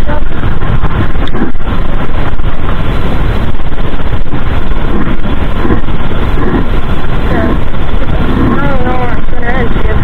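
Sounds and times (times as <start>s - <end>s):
stream water rushing: 0.0s - 10.0s.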